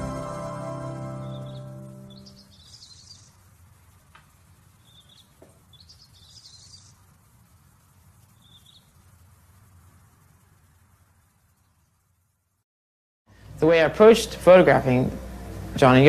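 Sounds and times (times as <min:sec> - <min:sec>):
music chord: 0:00.0 - 0:02.4
low steady hum: 0:00.0 - 0:12.6
faint birds chirping: 0:00.9 - 0:12.6.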